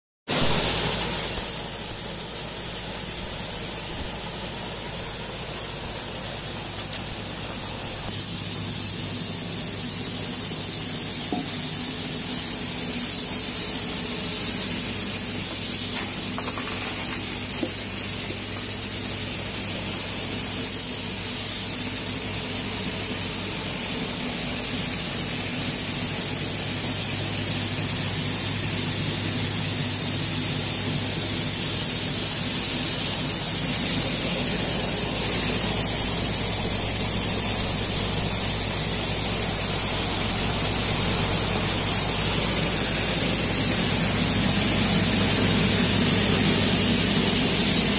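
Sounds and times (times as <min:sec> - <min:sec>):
winnowing machine fan rushing: 0:00.3 - 0:47.9
low machine hum: 0:25.6 - 0:47.9.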